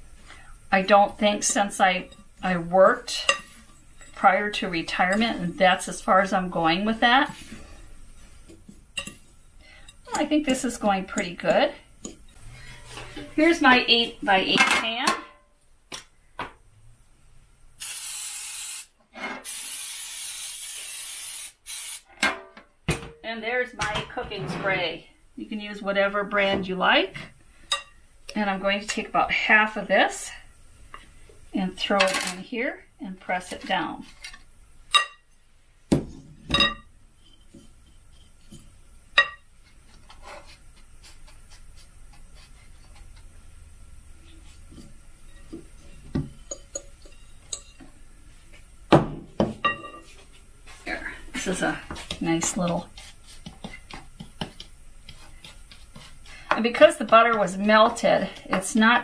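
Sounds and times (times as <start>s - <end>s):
aerosol spray hissing: 17.8s - 18.9s, 19.5s - 22.0s.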